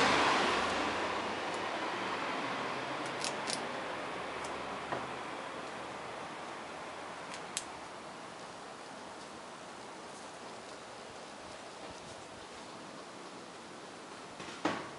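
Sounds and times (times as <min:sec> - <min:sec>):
passing car road noise: 0:00.0 - 0:08.0.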